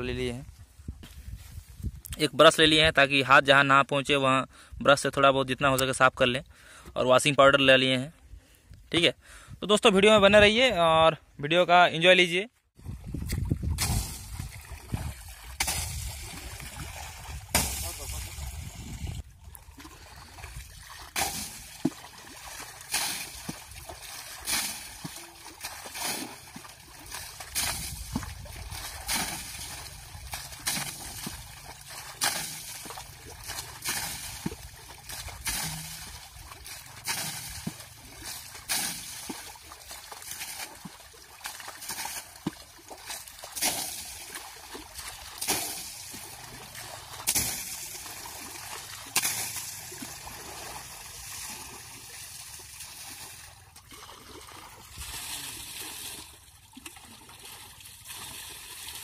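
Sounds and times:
water sloshing in bucket: 12.8 - 59.0
water pouring: 13.5 - 59.0
water splashing over engine: 19.7 - 59.0.

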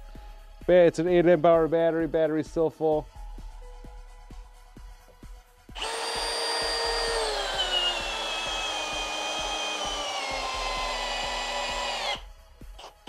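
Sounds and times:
drill motor whine: 5.8 - 13.0.

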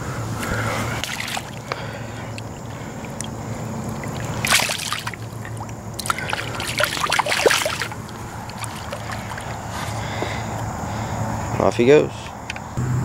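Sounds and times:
fish splashing in water: 0.5 - 10.1.

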